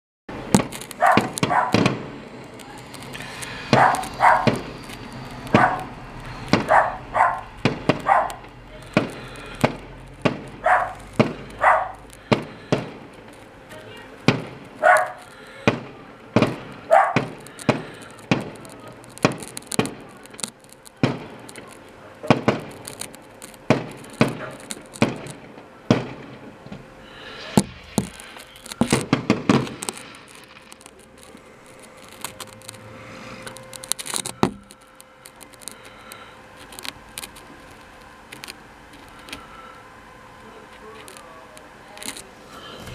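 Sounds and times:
fireworks bangs and cracks: 0.3 - 35.7
fireworks crackling: 0.3 - 42.9
dog barking: 1.0 - 1.8, 3.7 - 4.6, 5.5 - 6.0, 6.6 - 8.4, 10.6 - 11.0, 11.6 - 12.0, 14.8 - 15.2, 16.9 - 17.4, 24.4 - 24.6.

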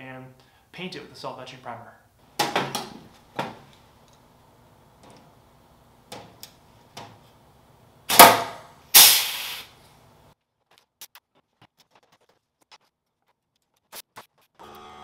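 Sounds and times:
rivet gun loud snaps: 8.1 - 9.6.

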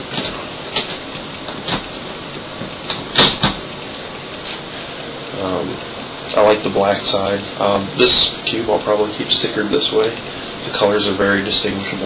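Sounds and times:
background hiss: 0.0 - 12.0.

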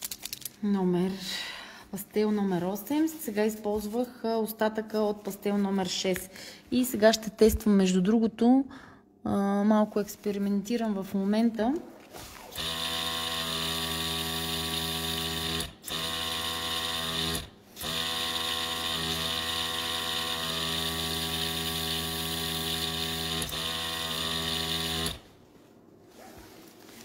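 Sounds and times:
small electric motor buzzing: 12.5 - 25.2.

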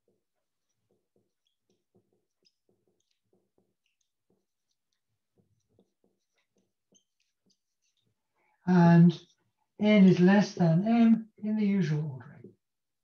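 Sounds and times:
pen or chalk writing: 0.0 - 8.3.

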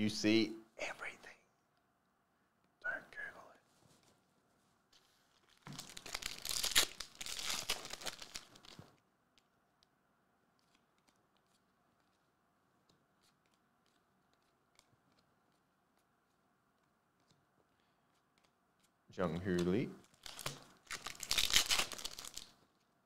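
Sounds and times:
foil wrapper tearing and crinkling: 5.4 - 8.8, 20.1 - 22.5.

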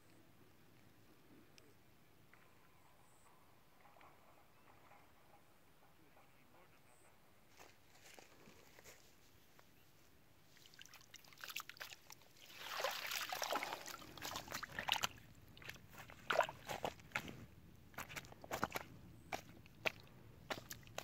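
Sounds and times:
water sloshing and trickling: 10.4 - 21.0
wet net crackling on stones: 10.6 - 21.0.

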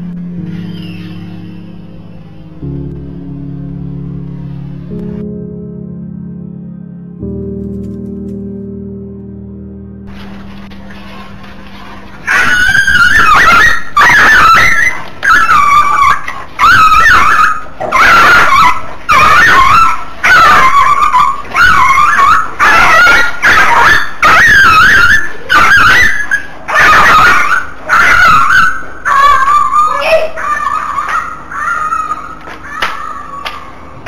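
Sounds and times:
puppy yelping: 12.2 - 33.7.

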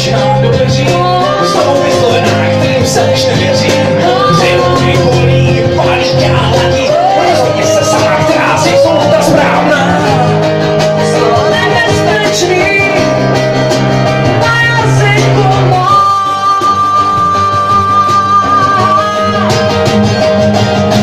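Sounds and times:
person singing: 0.0 - 13.3, 14.3 - 19.9
acoustic guitar: 0.0 - 21.0.

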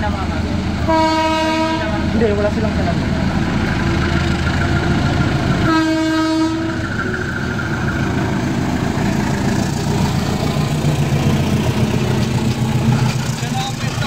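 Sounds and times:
diesel engine rumbling: 0.0 - 14.0
locomotive horn blast: 0.9 - 2.0, 5.6 - 6.8.

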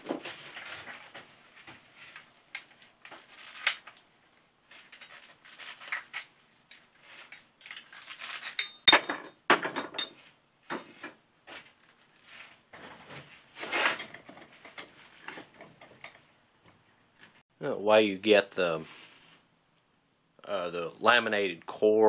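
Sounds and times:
metal tools clinking and knocking: 4.9 - 11.2, 13.7 - 16.3.

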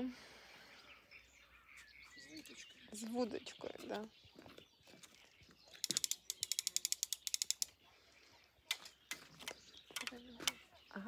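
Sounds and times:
fishing reel ratchet clicking: 5.8 - 7.7.

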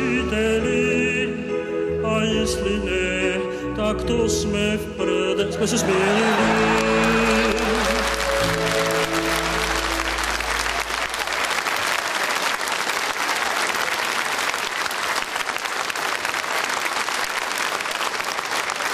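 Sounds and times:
held notes of music: 0.0 - 11.3
audience applauding: 5.8 - 18.9.

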